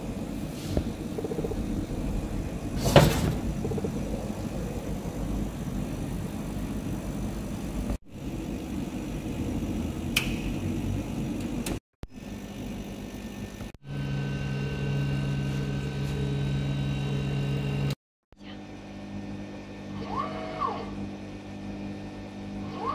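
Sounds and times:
stepper motor whine: 0.0 - 18.0
laser engraver humming: 12.2 - 22.6.

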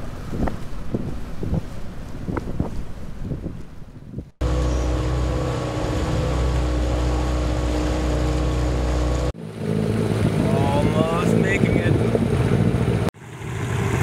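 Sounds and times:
water noise: 0.0 - 14.0
wind: 0.0 - 14.0
outboard motor running: 4.4 - 14.0.

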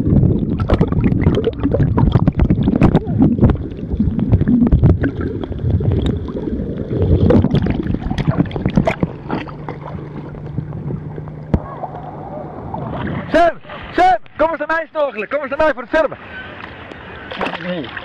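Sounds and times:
crackles and clicks: 0.0 - 12.1
underwater water sloshing: 0.0 - 14.4
steady low hum: 0.0 - 15.0.

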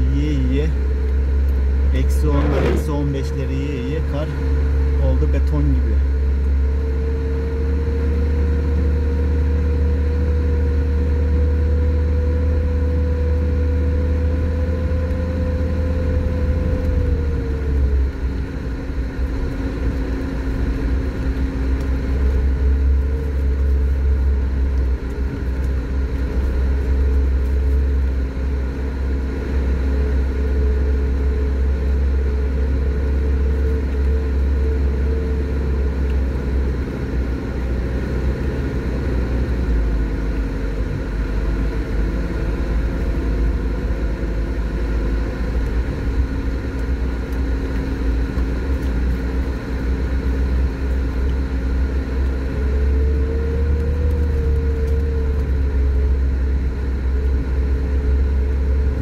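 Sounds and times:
steady whine: 0.0 - 8.0
low engine drone: 0.0 - 59.0.

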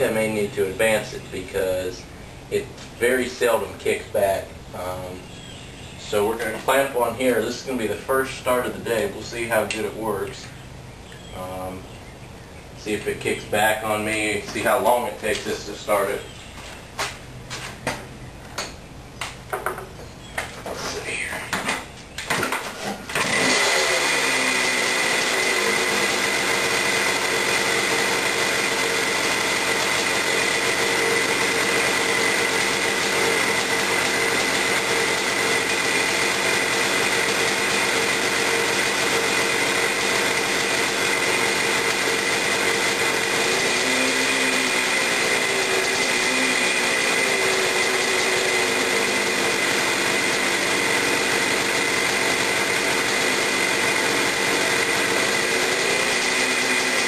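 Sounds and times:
two-stroke engine running: 22.3 - 57.0.

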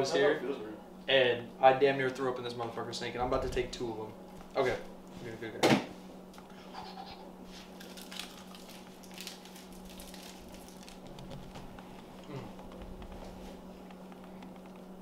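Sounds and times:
low hum: 6.1 - 15.0
plastic wrappers crinkling: 7.6 - 13.4.

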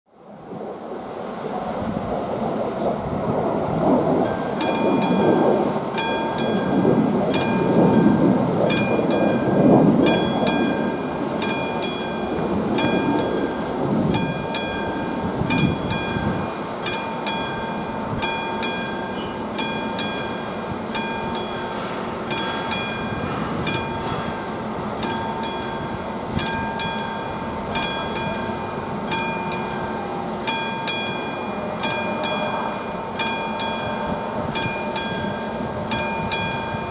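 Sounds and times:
wind rumble on microphone: 0.1 - 30.4, 31.1 - 36.9
crossing warning bell ringing: 4.1 - 36.9.

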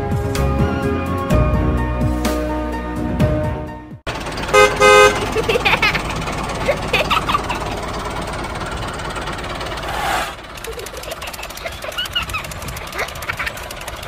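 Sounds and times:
tractor engine chugging: 4.1 - 14.0.

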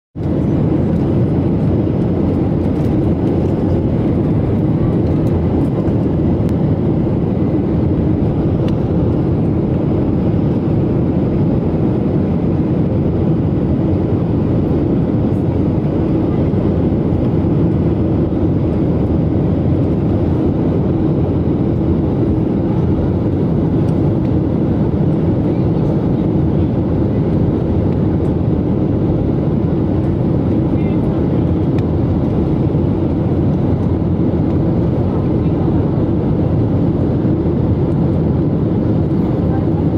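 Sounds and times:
jet cabin engine and airflow noise: 0.2 - 39.9.

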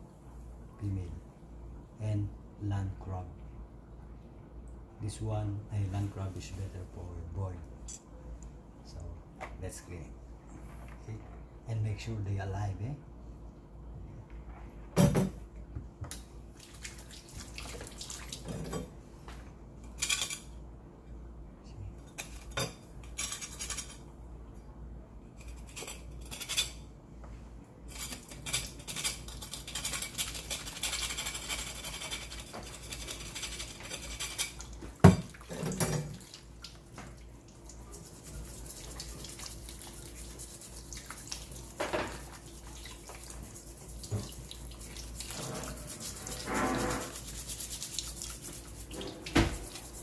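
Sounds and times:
knife scraping crab shell: 27.9 - 34.6, 45.1 - 48.9.

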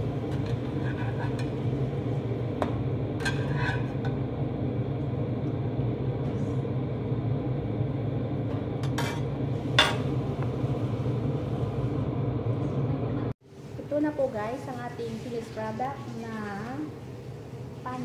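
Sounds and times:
steady low hum: 0.0 - 18.0
metal spatula scraping frying pan: 0.3 - 1.7, 3.2 - 4.1.

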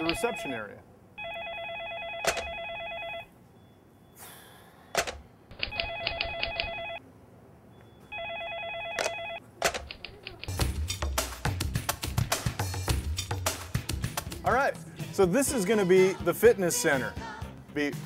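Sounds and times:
telephone ringing: 0.0 - 3.4, 5.5 - 7.0, 7.9 - 9.5.

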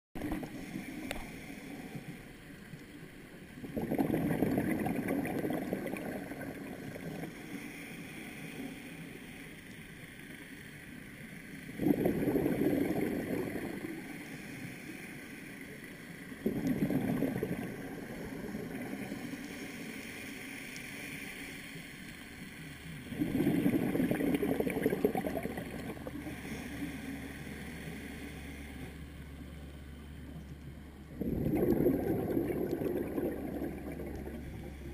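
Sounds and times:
regulator inhalation hiss: 0.5 - 2.2, 7.0 - 9.8, 13.7 - 16.3, 26.1 - 29.0
exhaled bubbles underwater: 3.5 - 7.4, 11.6 - 14.2, 16.3 - 19.3, 23.0 - 27.3, 29.9 - 34.9.

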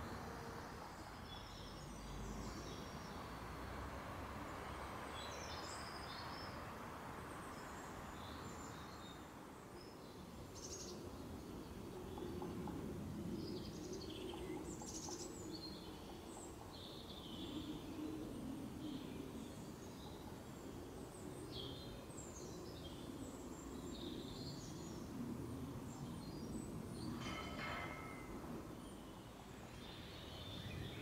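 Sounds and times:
low outdoor background hum: 0.0 - 31.0
small birds chirping: 7.3 - 31.0.

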